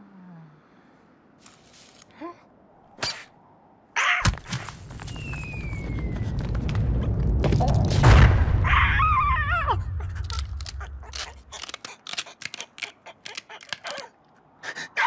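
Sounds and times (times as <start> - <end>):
heavy rumbling boom: 5.5 - 10.2
cartoon bird squawking: 12.2 - 14.1.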